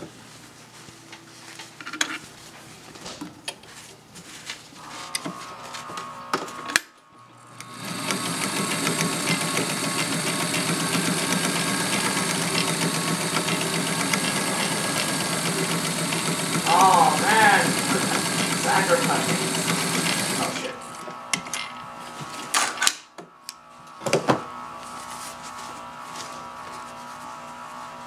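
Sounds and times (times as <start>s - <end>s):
sewing machine stitching: 7.6s - 20.9s.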